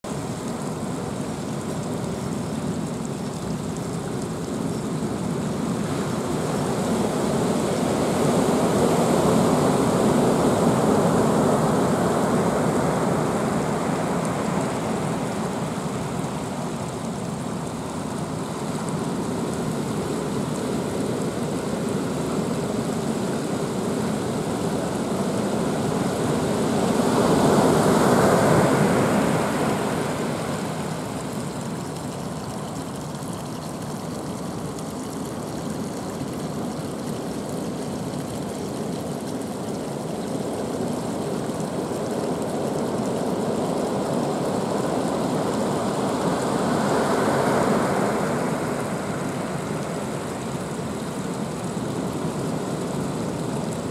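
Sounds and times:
heavy surf breaking on shore: 0:26.5 - 0:31.2, 0:45.9 - 0:50.7.

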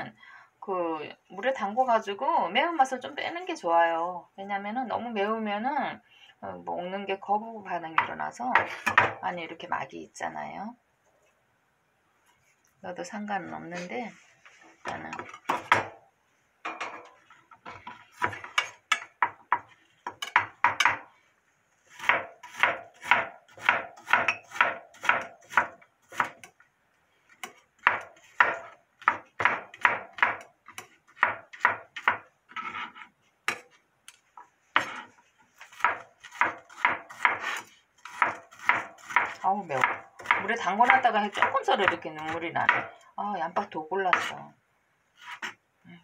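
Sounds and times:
knife chopping on wooden board: 0:21.9 - 0:26.5, 0:27.4 - 0:32.3, 0:35.6 - 0:42.9.

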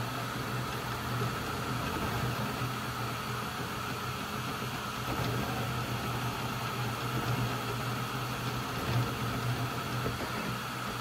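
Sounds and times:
printer motors and fans humming: 0:00.0 - 0:11.0.

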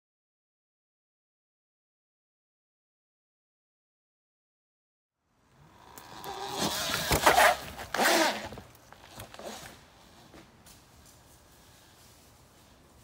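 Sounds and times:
electric dirt bike passing: 0:05.6 - 0:09.8.

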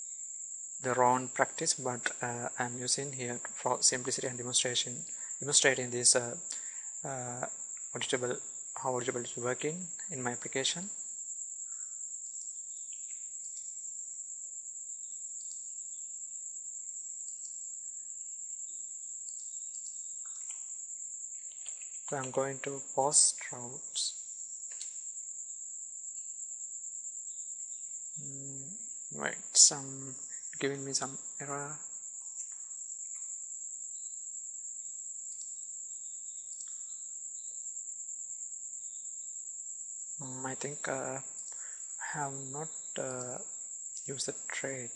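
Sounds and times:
high-pitched whine: 0:28.2 - 0:31.8.

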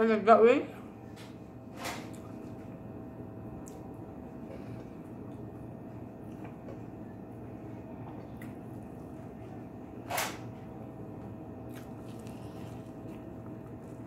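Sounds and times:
steady low hum: 0:00.0 - 0:14.0
wet clicks of eating: 0:03.6 - 0:03.9.

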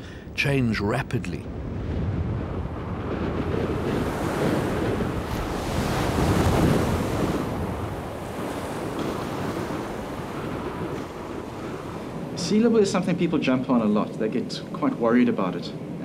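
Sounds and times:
wind buffeting microphone: 0:00.9 - 0:16.0
surf breaking against sea wall: 0:01.8 - 0:14.2.

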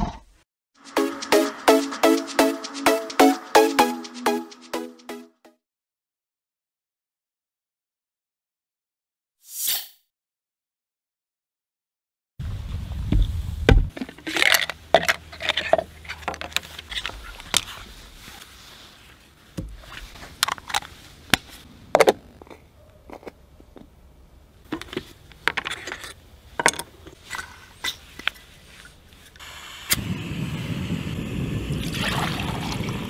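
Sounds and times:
camping coffee gear clicking and scraping: 0:13.9 - 0:24.0, 0:24.6 - 0:29.4.

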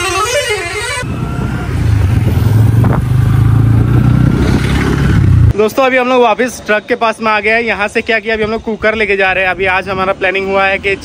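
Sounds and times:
vehicle horn: 0:00.0 - 0:02.3
motorcycle engine running: 0:01.0 - 0:05.5.

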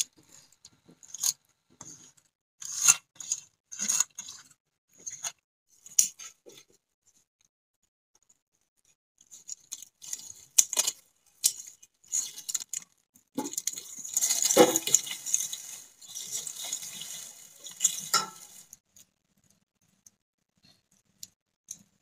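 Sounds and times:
fire crackling: 0:13.4 - 0:18.8
dry leaves rustling: 0:13.5 - 0:18.8.

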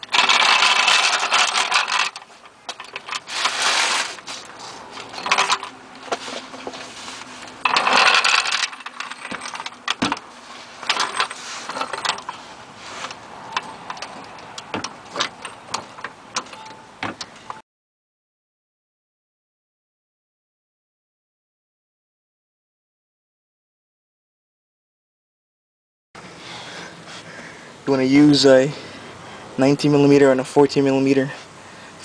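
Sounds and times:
metallic clicks and knocks: 0:00.0 - 0:03.3, 0:05.0 - 0:06.8, 0:07.5 - 0:12.4, 0:13.0 - 0:17.6
floor jack scraping and rattling: 0:00.0 - 0:16.0.

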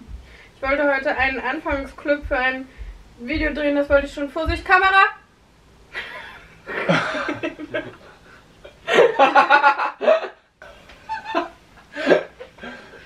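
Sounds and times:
woman laughing: 0:06.0 - 0:08.0, 0:11.1 - 0:12.8.

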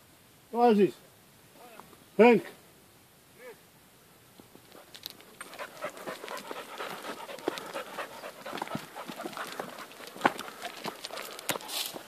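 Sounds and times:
footsteps on stony ground: 0:04.4 - 0:12.0
dog panting: 0:04.8 - 0:12.0.

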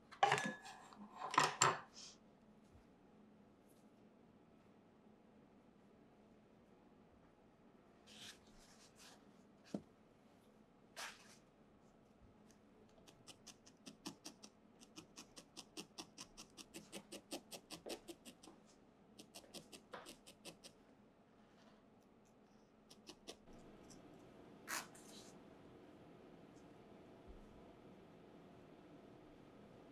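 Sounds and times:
felting needle poking wool: 0:12.9 - 0:18.6, 0:19.2 - 0:20.7, 0:22.9 - 0:23.5.

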